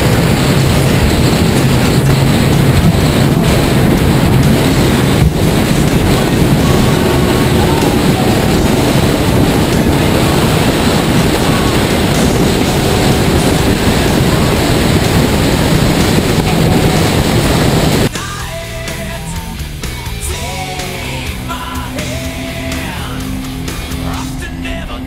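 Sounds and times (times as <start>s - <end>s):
water rushing off hull: 0.0s - 18.1s
wind buffeting microphone: 0.0s - 18.1s
boat engine droning: 0.0s - 25.0s.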